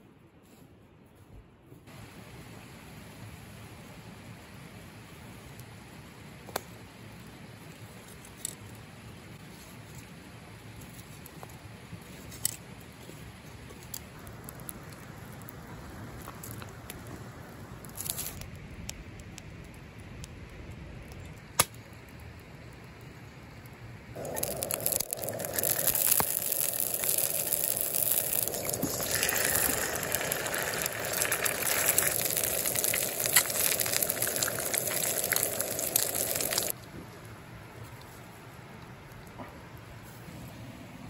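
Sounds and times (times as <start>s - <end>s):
sausages sizzling in oil: 24.2s - 36.8s.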